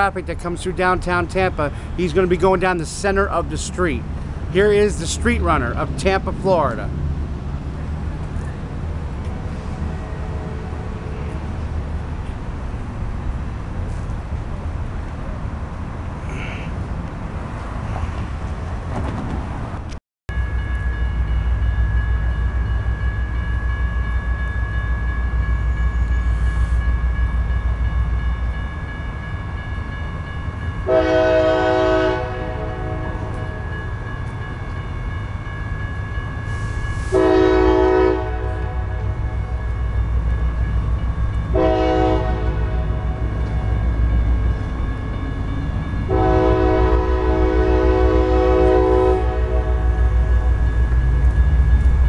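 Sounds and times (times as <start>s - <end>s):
locomotive air horn: 30.8s - 33.6s, 36.5s - 39.0s, 41.5s - 43.3s, 46.1s - 50.0s.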